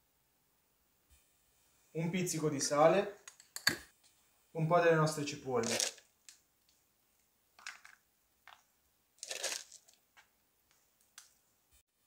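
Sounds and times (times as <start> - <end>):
onion flakes crunching: 5.6 - 6.1, 9.2 - 10.0.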